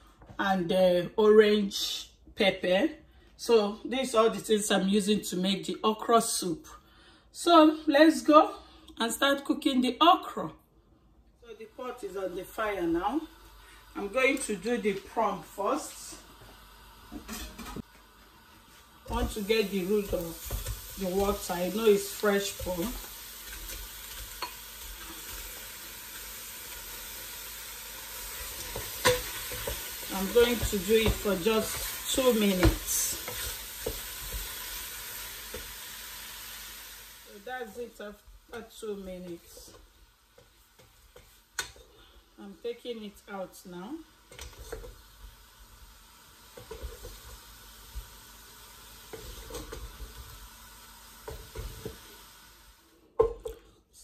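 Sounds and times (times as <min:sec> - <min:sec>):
prawns sizzling in a pot: 0:11.4 - 0:54.0
wooden spoon scraping a pot: 0:18.7 - 0:26.2, 0:28.2 - 0:35.7, 0:37.6 - 0:42.1, 0:44.3 - 0:45.0, 0:49.1 - 0:50.3.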